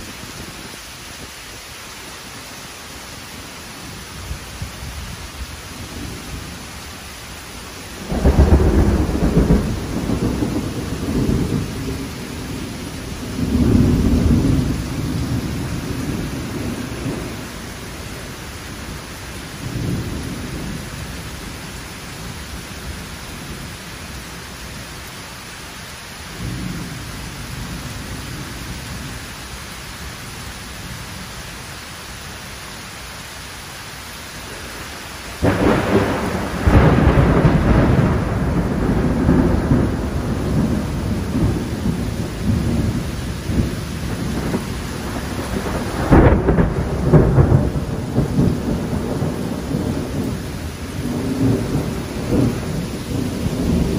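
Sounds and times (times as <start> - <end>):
heavy rain falling: 0.0 - 53.9
thunder rumbling: 3.8 - 25.2, 34.5 - 53.9
sharp thunder clap: 8.0 - 17.4, 35.4 - 53.9.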